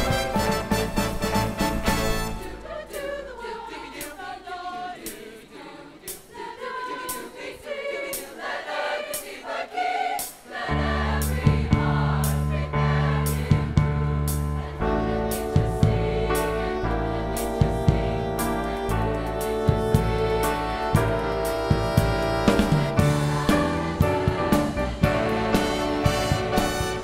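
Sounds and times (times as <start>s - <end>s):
school choir singing: 1.9s - 27.0s
low accompaniment: 10.8s - 27.0s.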